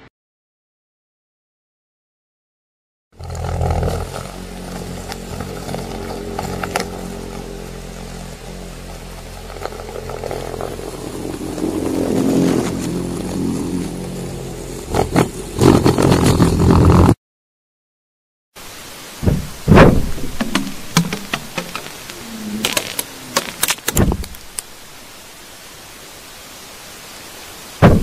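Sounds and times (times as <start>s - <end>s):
rock drill droning: 3.2s - 16.2s, 19.1s - 25.0s
sharp clicks: 20.4s - 24.7s.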